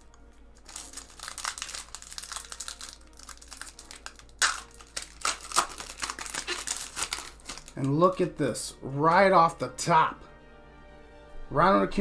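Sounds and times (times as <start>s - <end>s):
foil wrapper tearing and crinkling: 0.0s - 8.2s.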